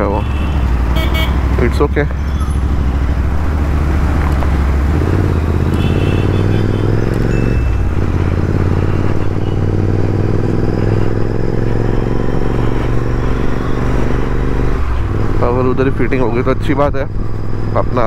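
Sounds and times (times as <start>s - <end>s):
motorcycle engine running: 0.0s - 14.4s.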